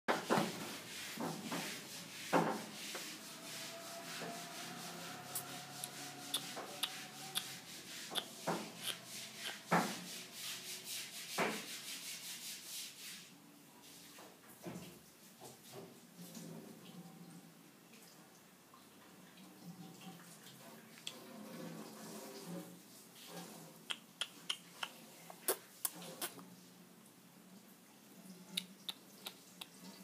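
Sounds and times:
close rubbing and rustling: 0.1s - 16.8s, 20.6s - 23.9s.

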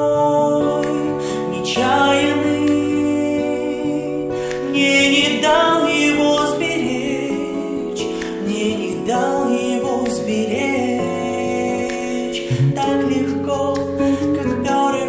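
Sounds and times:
woman singing: 0.0s - 15.0s.

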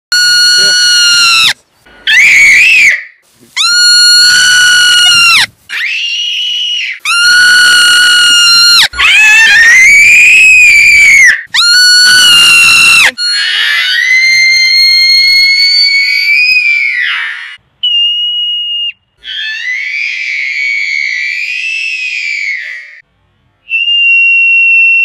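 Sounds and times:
marmot alarm scream: 0.1s - 17.6s
girl imitating screams: 2.2s - 17.3s.

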